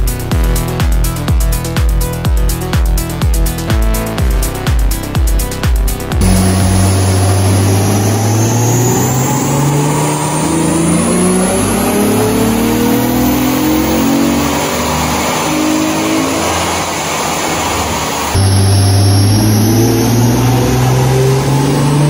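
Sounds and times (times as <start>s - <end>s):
car engine accelerating hard: 6.1s - 22.0s.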